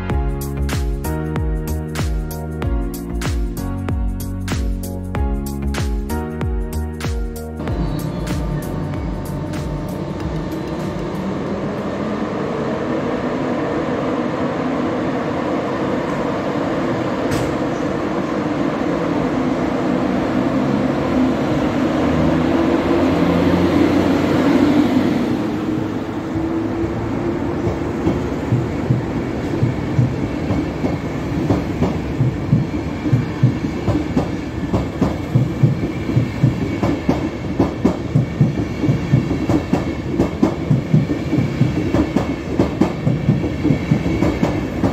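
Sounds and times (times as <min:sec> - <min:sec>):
electric locomotive passing: 0:04.9 - 0:44.9
train wheels clacking over rail joints: 0:27.6 - 0:44.9.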